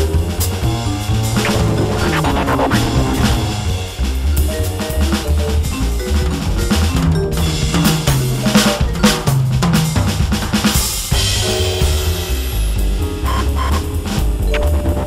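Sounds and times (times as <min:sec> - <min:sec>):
stepping bass line: 0:00.0 - 0:04.6
electronic drum kit swing beat: 0:00.0 - 0:15.0.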